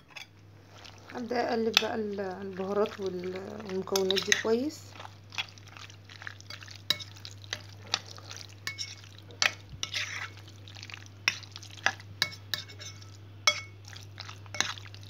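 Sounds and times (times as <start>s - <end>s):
metal spoon clinking glass bowl: 12.2s - 13.8s.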